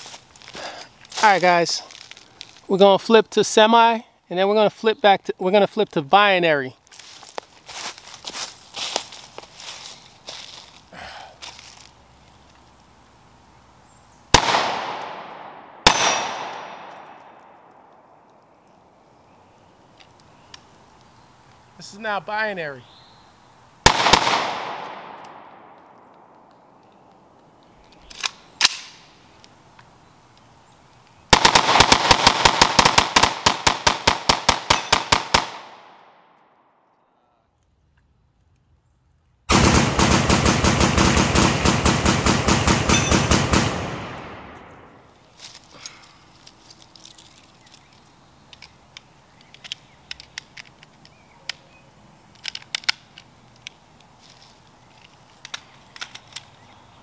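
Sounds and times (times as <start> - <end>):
gear clicks and scrapes on leaf litter: 0.0 - 2.8, 6.8 - 12.7, 53.4 - 56.9
rifle shots with echo: 14.3 - 17.9, 23.8 - 26.3, 31.3 - 36.4, 39.5 - 45.1.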